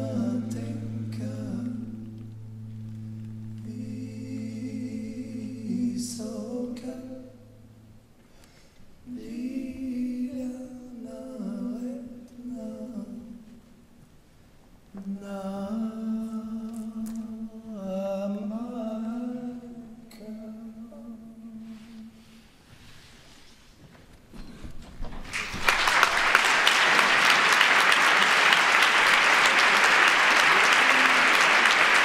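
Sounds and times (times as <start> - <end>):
person singing a cappella: 0.0 - 2.7, 3.5 - 7.7, 9.0 - 13.6, 15.0 - 22.4.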